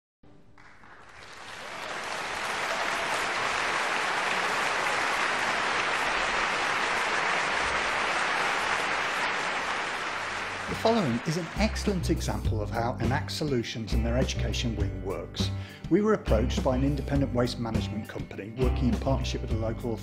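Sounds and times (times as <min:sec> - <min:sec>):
crowd applauding: 0:00.4 - 0:12.6.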